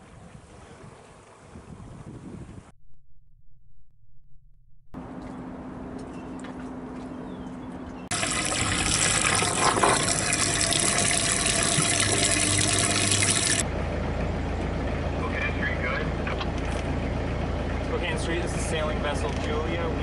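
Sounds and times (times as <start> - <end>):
water gushing from hose: 8.1 - 13.6.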